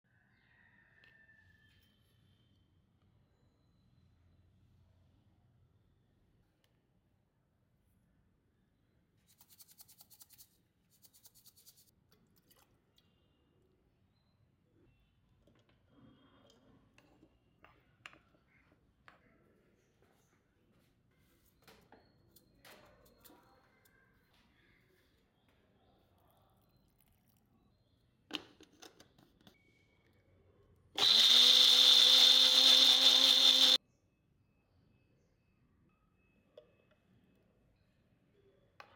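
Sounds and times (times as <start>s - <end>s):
blender motor running: 31.0s - 33.8s.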